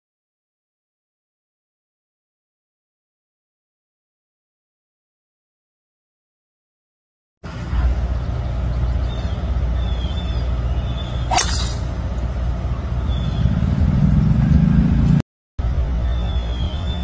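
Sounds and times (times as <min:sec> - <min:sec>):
low outdoor rumble: 0:07.4 - 0:17.0
golf club striking ball: 0:11.2 - 0:12.0.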